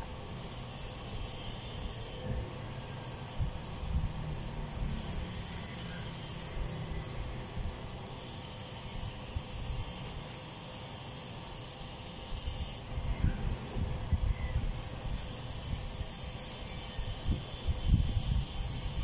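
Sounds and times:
steady high hiss: 0:00.0 - 0:19.0
wind rumble on microphone: 0:01.1 - 0:05.6, 0:12.3 - 0:19.0.

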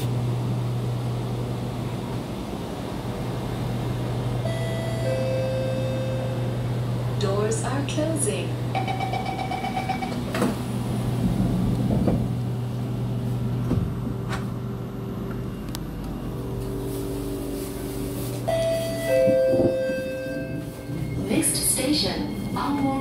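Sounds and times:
low hum inside train car: 0:00.0 - 0:23.0
electric traction whine stepping pitch: 0:03.7 - 0:12.0.

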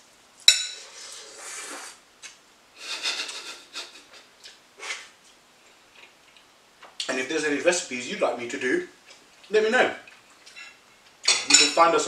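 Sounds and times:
person slurping and chewing: 0:00.8 - 0:02.4.

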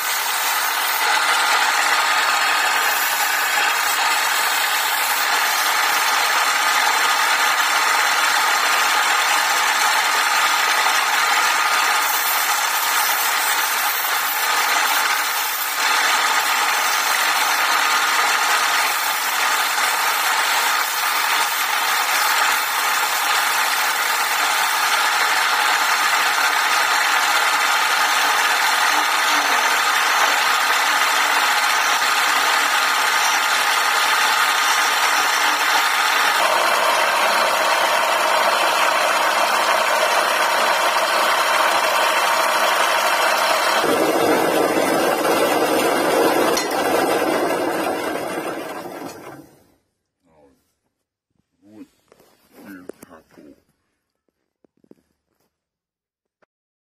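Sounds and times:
sandpaper on spinning wood: 0:00.0 - 0:48.5
wood lathe running: 0:00.0 - 0:49.6
chisel cutting spinning wood: 0:00.0 - 0:49.7.

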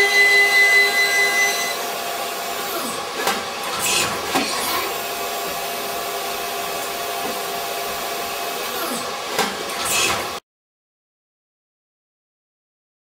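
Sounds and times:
high spindle whine: 0:00.0 - 0:09.2.

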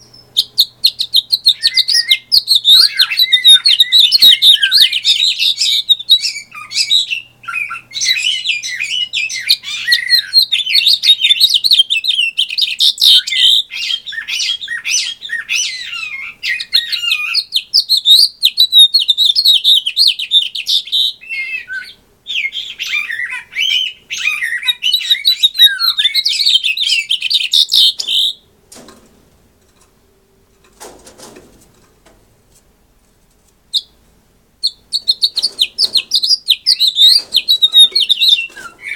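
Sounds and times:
finch warbling song: 0:34.6 - 0:38.9.

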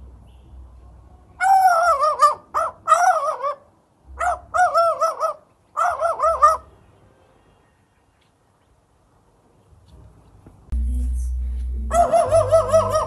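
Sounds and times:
magpie warbling: 0:11.9 - 0:13.0.

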